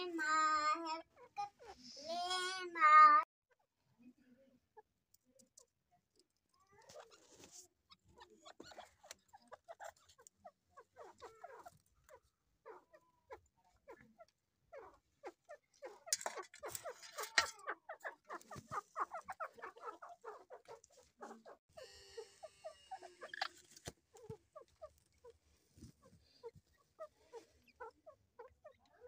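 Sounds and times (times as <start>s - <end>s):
chicks peeping: 15.2s - 29.0s.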